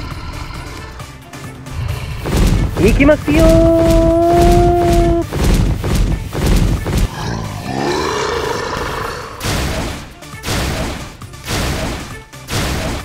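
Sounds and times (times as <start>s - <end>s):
background music: 0.0s - 13.0s
crashing bursts: 2.0s - 7.7s
roar-like cry rising in pitch: 7.1s - 9.4s.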